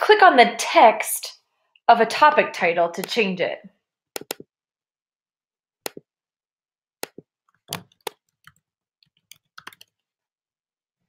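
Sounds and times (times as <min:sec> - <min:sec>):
computer mouse clicks: 0:04.2 - 0:04.4, 0:07.0 - 0:09.9
keyboard keystrokes: 0:04.2 - 0:04.4, 0:09.3 - 0:09.9.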